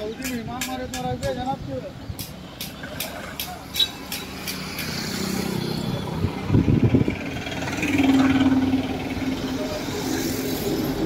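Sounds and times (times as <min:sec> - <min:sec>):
vehicle engine: 0:02.3 - 0:11.0
people's voices in background: 0:08.7 - 0:11.0.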